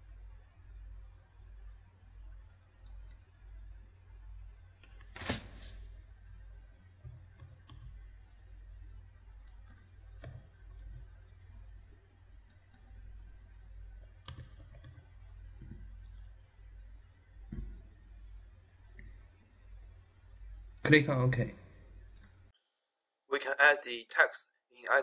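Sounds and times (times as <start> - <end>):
low steady hum: 0.0 - 22.6
mouse and keyboard clicks: 9.4 - 11.0, 12.4 - 13.0.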